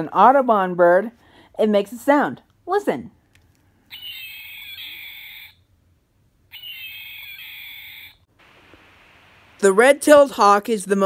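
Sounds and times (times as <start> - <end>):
toy speaker hawk scream: 3.9 - 5.7, 6.5 - 8.3.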